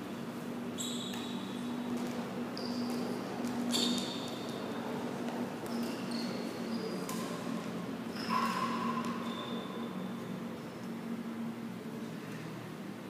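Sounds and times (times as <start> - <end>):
shoes squeaking on floor: 0.8 - 4.8, 5.6 - 7.4, 8.1 - 10.8.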